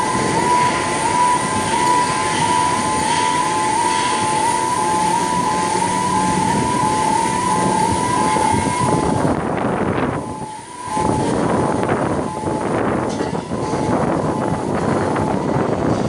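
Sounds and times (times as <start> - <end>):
loud background noise: 0.0 - 16.0
two-tone warning alarm: 0.0 - 16.0.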